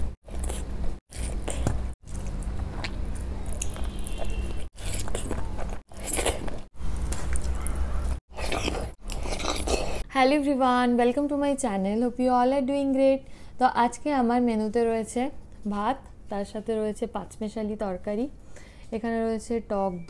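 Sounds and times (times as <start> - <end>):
person chewing: 0.2 - 10.0.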